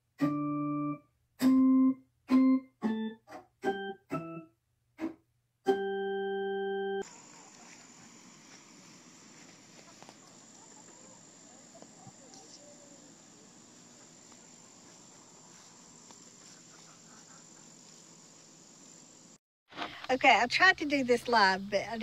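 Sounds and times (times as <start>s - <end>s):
high-pitched insect trill: 7.0s - 8.6s, 17.3s - 19.4s.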